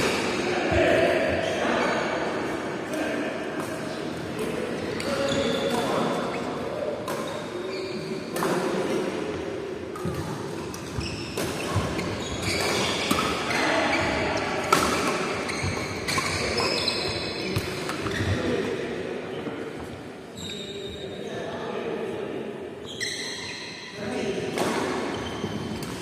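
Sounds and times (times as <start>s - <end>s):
racket hitting shuttlecock: 7.0s - 7.4s, 9.9s - 13.5s, 14.6s - 16.4s, 24.5s - 25.1s
shoes squeaking on court: 7.1s - 8.4s, 10.8s - 14.2s, 15.0s - 18.4s, 20.3s - 21.1s, 22.8s - 23.9s, 25.0s - 26.0s.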